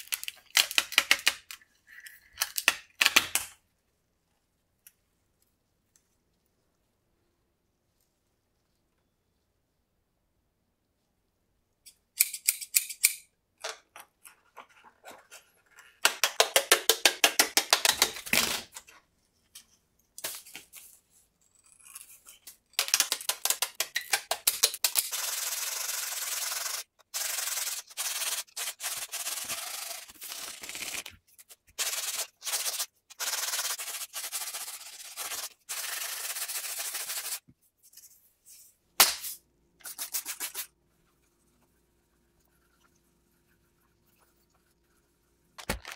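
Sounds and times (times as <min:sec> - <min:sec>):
wet sanding with sandpaper: 0:25.2 - 0:30.8, 0:31.8 - 0:37.4, 0:39.8 - 0:40.7.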